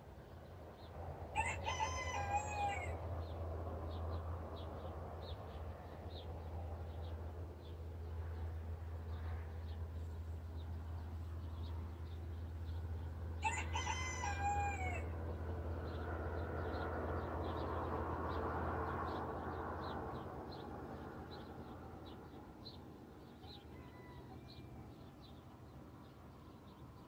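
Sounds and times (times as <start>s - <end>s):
rooster crowing: 1.3s - 3.0s, 13.4s - 15.1s, 23.4s - 24.8s.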